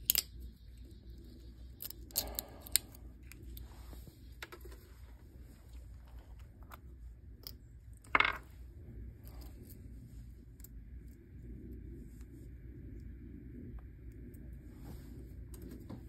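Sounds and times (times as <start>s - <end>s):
die clattering onto tabletop: 8.1s - 8.4s.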